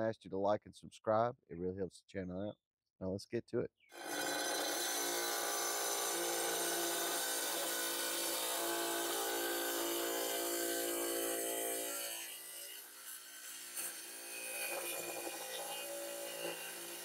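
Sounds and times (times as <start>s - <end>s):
tile saw motor whine: 4.0s - 17.0s.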